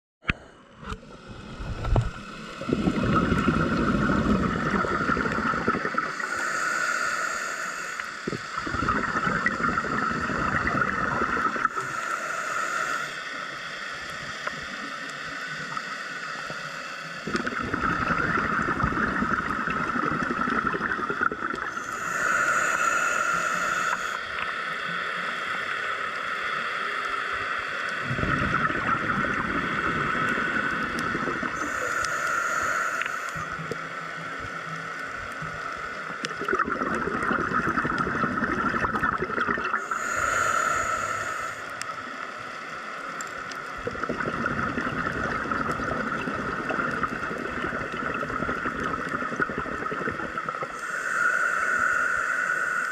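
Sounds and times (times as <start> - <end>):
regulator bubbles on exhale: 0.2 - 7.1, 8.0 - 12.0, 17.2 - 24.5, 28.0 - 33.8, 35.4 - 41.9, 43.2 - 52.9
steady high hum: 0.3 - 27.2, 27.8 - 52.9
air hiss on inhale: 1.2 - 28.0, 29.5 - 36.4, 39.7 - 43.8, 50.2 - 52.9.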